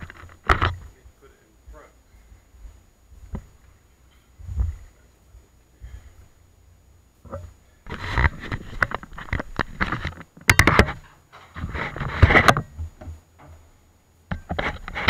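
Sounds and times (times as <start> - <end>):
knocks clatters and scraping: 0.0 - 1.0, 7.2 - 15.0.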